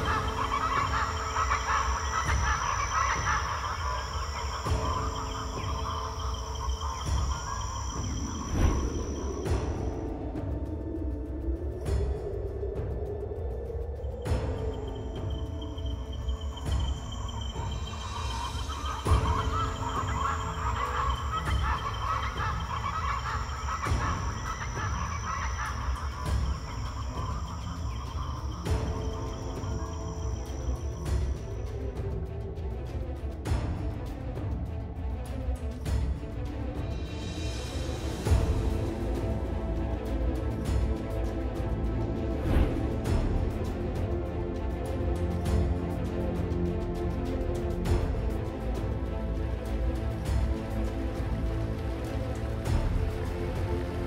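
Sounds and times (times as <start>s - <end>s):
birds chattering: 0.0s - 10.0s, 14.6s - 31.8s
high insect drone: 0.0s - 54.0s
low rumble: 36.2s - 46.9s.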